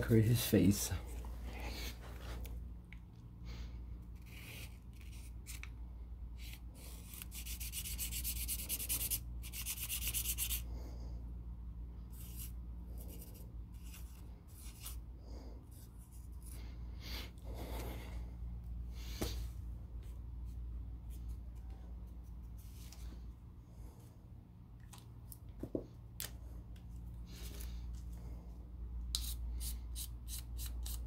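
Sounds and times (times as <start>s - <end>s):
steady low hum: 0.0s - 31.0s
marker scratching on paper: 6.4s - 10.6s, 12.1s - 15.0s.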